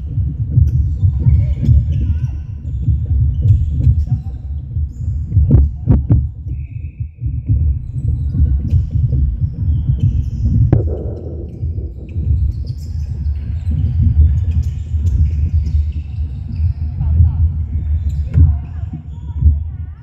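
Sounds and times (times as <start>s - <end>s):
low thudding rumble: 8.4s - 14.5s
sharp knocks: 10.7s - 12.3s.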